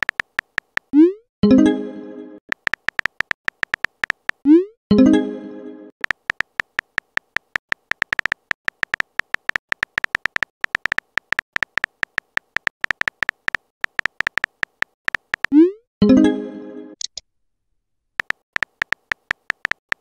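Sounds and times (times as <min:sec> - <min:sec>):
smartphone keyboard tap clicks: 0:00.0 - 0:00.9, 0:02.5 - 0:04.4, 0:06.0 - 0:15.5, 0:18.2 - 0:20.0.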